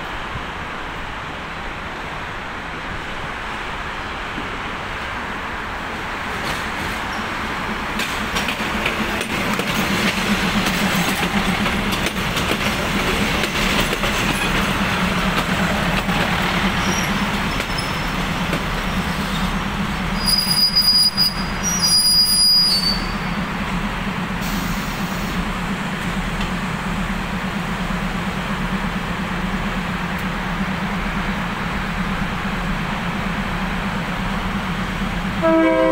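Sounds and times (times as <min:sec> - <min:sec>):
train wheels on rails: 0:00.0 - 0:35.9
high brake squeals: 0:16.8 - 0:18.2, 0:20.2 - 0:23.4.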